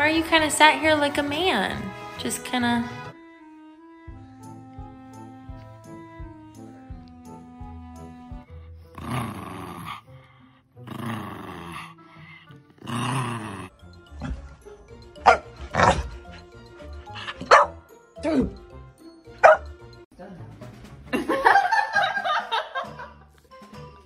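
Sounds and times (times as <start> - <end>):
background music: 0.0 - 24.0
dog growling: 8.9 - 17.6
dog barking: 15.2 - 16.1, 17.3 - 17.8, 19.4 - 19.7.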